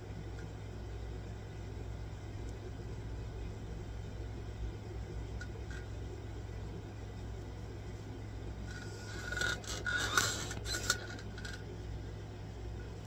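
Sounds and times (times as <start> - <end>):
steady low hum: 0.0 - 13.0
scratchy rubbing and scraping: 8.6 - 11.7.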